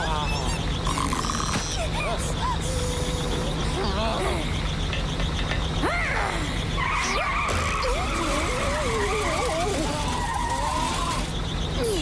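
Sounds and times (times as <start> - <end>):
cartoon tires squealing: 5.8 - 11.4.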